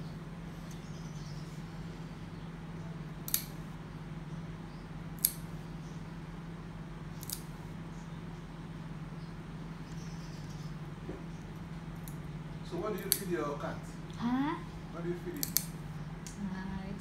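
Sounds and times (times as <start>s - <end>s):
steady low hum: 0.0s - 17.0s
nail clipper snipping claws: 3.3s - 3.6s, 5.2s - 5.5s, 7.2s - 7.5s, 13.0s - 13.3s, 15.4s - 16.4s.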